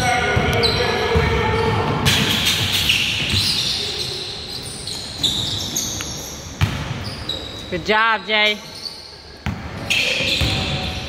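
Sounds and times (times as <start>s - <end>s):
sneakers squeaking: 0.0s - 11.0s
basketball bouncing: 6.6s - 7.0s.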